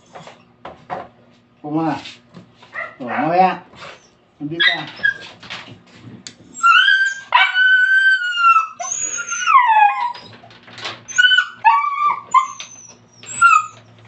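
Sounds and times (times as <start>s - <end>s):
puppy whining: 3.8s - 5.4s, 6.5s - 14.0s.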